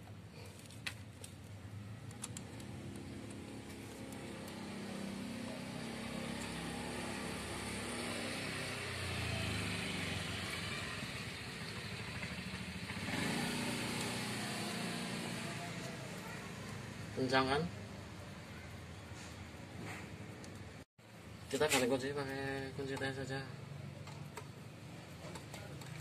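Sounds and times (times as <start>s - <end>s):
vehicle engine revving: 2.2s - 17.4s.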